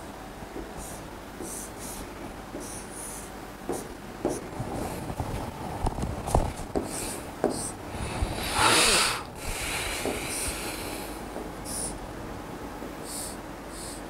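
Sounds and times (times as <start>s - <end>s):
pen tapping and scratching on board: 3.7s - 4.5s
rush of noise: 4.5s - 12.4s.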